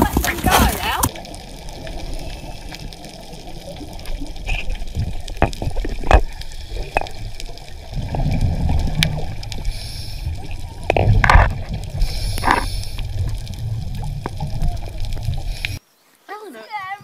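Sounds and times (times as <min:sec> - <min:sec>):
underwater rush of water: 0:00.0 - 0:15.8
sharp clicks and knocks: 0:04.5 - 0:07.2.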